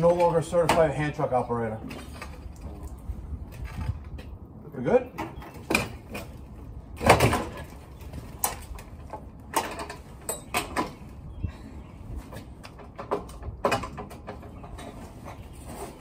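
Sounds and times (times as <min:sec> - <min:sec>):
metal clunks and scrapes: 0:12.3 - 0:16.0.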